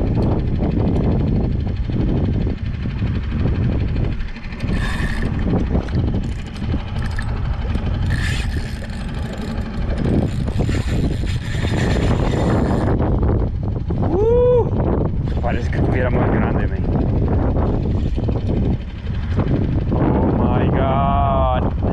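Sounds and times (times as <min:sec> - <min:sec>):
small outboard motor running: 0:00.0 - 0:21.9
wind buffeting microphone: 0:00.0 - 0:21.9
water washing along hull: 0:03.2 - 0:14.0.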